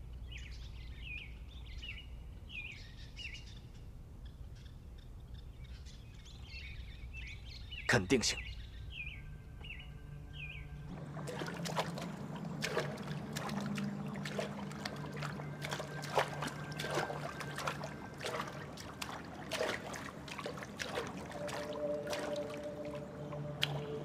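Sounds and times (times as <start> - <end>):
birds chirping: 0.2 - 24.0
low steady drone: 8.6 - 24.0
water dripping and splashing: 10.9 - 24.0.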